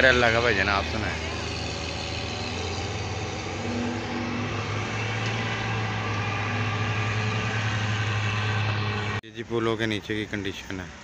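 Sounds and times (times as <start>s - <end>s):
low engine hum: 0.0s - 9.2s
wide rushing noise: 2.1s - 9.2s.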